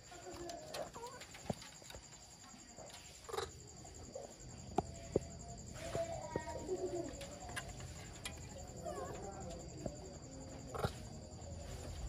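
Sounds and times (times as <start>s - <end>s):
monkey climbing on wire mesh: 0.0s - 12.0s.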